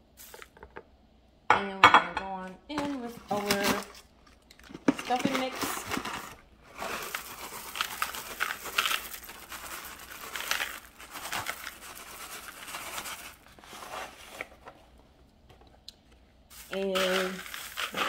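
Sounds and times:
crinkling packet: 2.8 - 14.6, 16.5 - 18.0
bread cubes poured into bowl: 6.8 - 14.0, 16.5 - 18.0.

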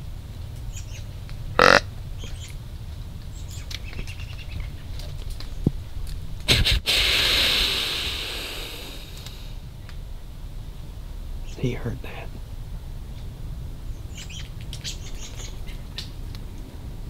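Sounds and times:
deer grunt: 1.6 - 1.8
deer snort-wheeze: 1.6 - 1.8, 6.5 - 9.6.

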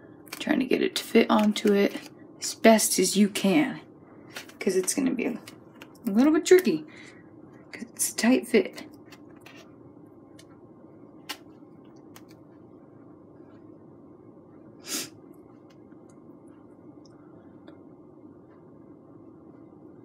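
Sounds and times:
low hum: 1.9 - 20.0
short hissing puff: 14.8 - 15.2.

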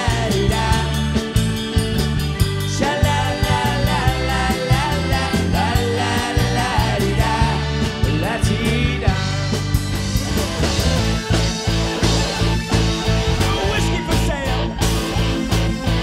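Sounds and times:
person singing: 0.0 - 1.3, 2.6 - 9.6, 13.4 - 14.8
drum kit beat: 0.0 - 16.0
electric guitar: 0.0 - 16.0.

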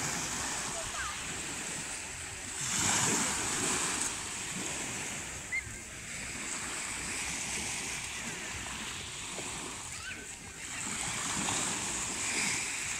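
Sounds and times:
small waves washing ashore: 0.0 - 12.9.

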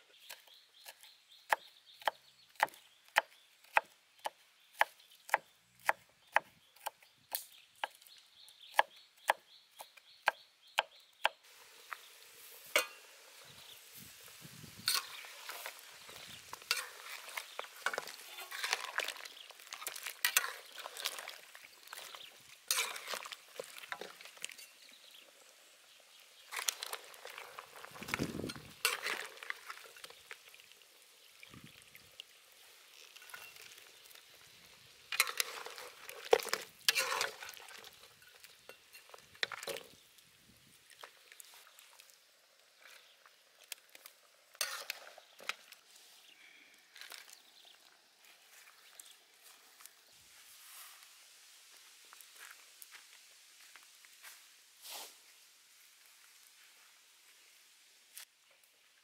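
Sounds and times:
skimmer clinking against metal wok: 12.7 - 13.1.

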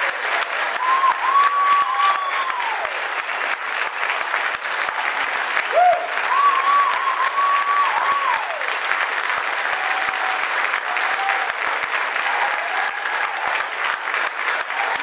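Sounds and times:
audience applauding: 0.0 - 15.0
whistled cheer: 0.6 - 3.0, 5.7 - 8.7, 9.7 - 11.6.

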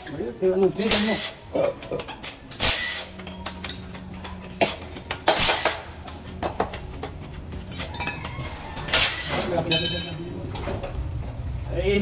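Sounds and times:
metal tools clinking: 7.6 - 8.4, 9.6 - 10.9.

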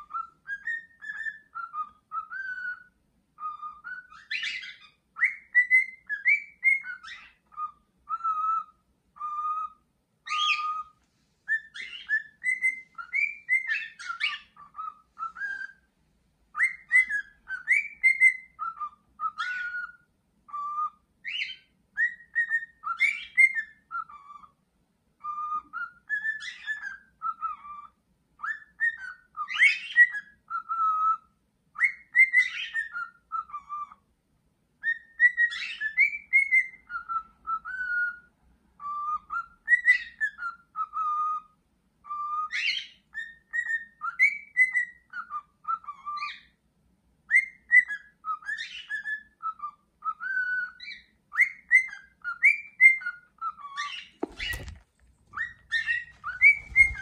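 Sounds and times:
cockatiel whistling: 0.0 - 15.9, 16.5 - 24.6, 25.2 - 34.1, 34.8 - 46.6, 47.2 - 57.0.

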